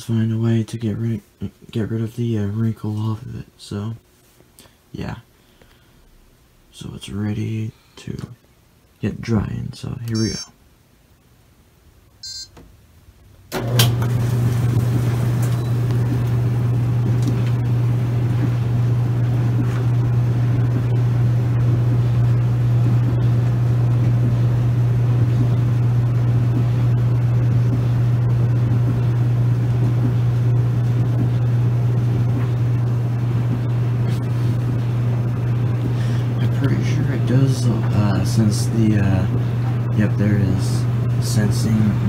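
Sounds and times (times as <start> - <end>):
short control panel beep: 12.2 - 12.6
clothes dryer motor hum: 13.5 - 42.0.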